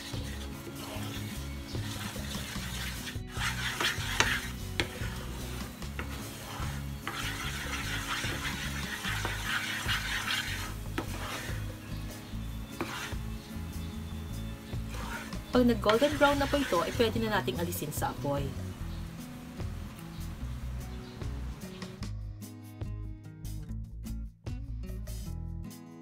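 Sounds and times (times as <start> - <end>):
spatula scraping pan: 0.0 - 17.8
caramel bubbling and sizzling: 0.0 - 21.6.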